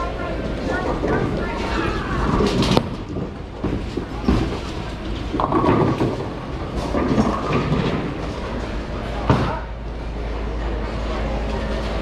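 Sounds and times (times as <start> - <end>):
bowling ball rolling rumble: 0.0 - 12.0.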